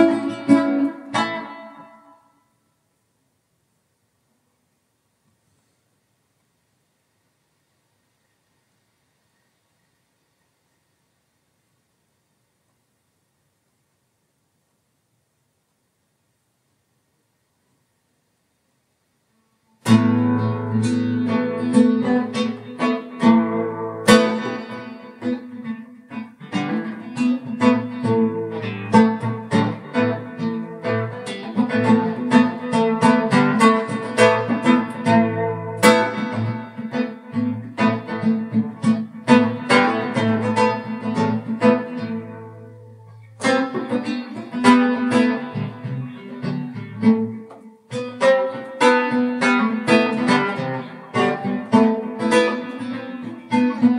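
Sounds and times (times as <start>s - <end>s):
picked guitar music: 0.0s - 2.5s, 19.6s - 53.9s.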